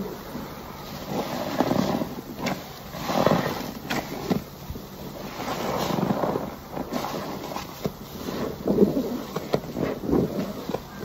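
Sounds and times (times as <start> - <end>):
wet sponge squelching: 5.1 - 11.0.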